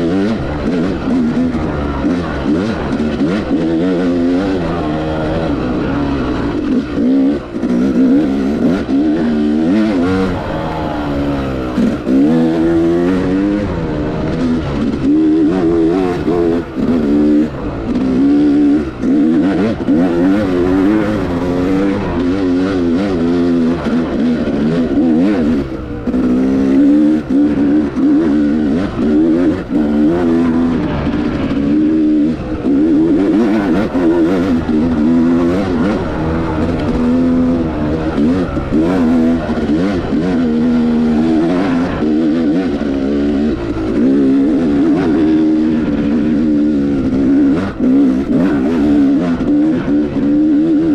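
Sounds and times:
dirt bike engine revving: 0.0s - 50.9s.

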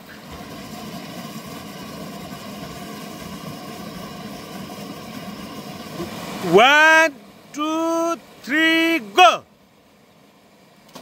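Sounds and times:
waterfall rushing into pool: 0.0s - 11.0s.

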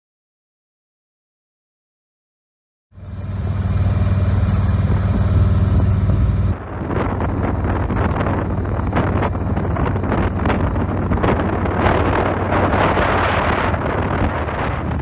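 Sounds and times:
road noise: 2.9s - 15.0s
motorcycle engine running: 3.0s - 15.0s
wind buffeting microphone: 3.2s - 15.0s.

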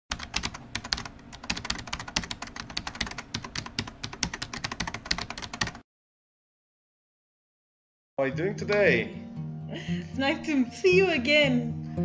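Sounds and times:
rapid irregular clicking: 0.1s - 5.8s.

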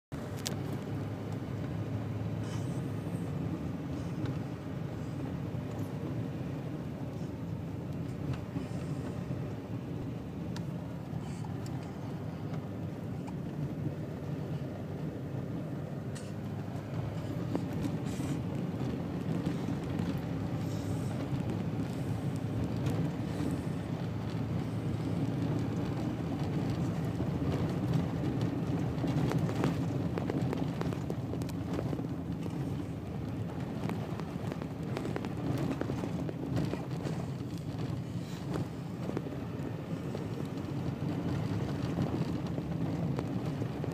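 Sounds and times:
road rumble inside truck cab: 0.0s - 43.9s.

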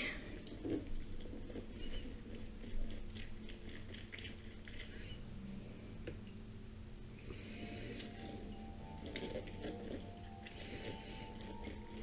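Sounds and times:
lemon squelching on citrus reamer: 0.4s - 5.2s.

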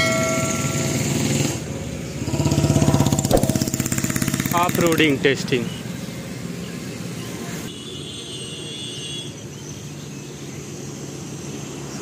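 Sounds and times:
vehicle engine running: 1.0s - 5.2s.

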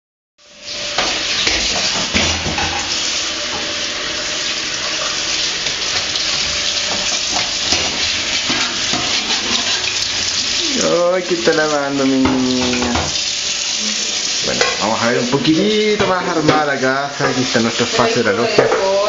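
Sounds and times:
dishes clinking: 0.9s - 3.7s, 5.6s - 10.0s, 12.1s - 13.2s, 14.5s - 14.9s, 18.4s - 19.0s.

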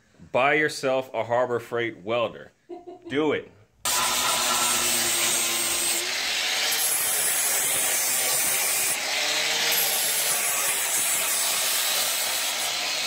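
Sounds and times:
power tool scraping metal: 3.9s - 13.0s.

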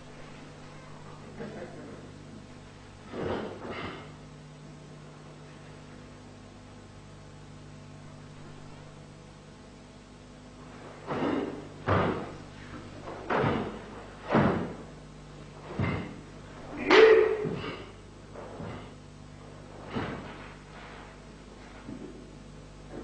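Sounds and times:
bare feet striking wooden floor: 11.1s - 14.8s.

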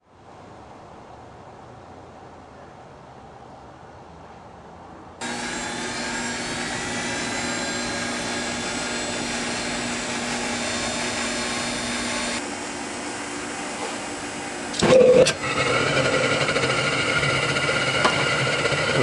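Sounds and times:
jet engine running with whine: 5.2s - 19.0s.

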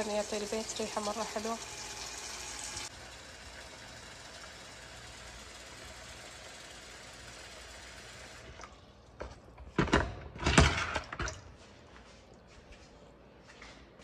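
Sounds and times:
tap water pouring into bucket: 0.1s - 9.2s.

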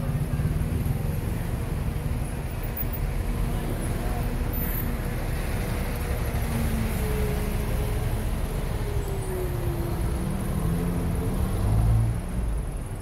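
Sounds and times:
vehicle engines passing: 0.0s - 13.0s.

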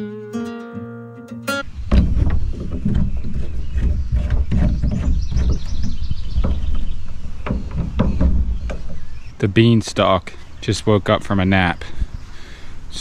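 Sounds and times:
gear knocking against metal boat: 1.6s - 9.3s
wind rumble on microphone: 1.6s - 9.3s.

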